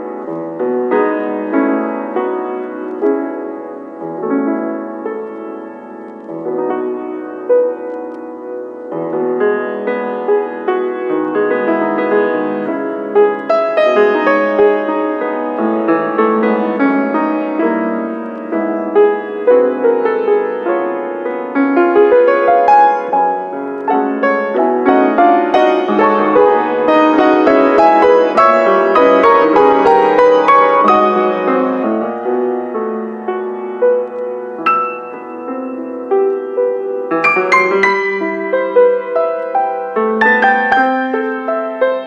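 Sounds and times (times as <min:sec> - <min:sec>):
grand piano playing: 0:00.0 - 0:42.0.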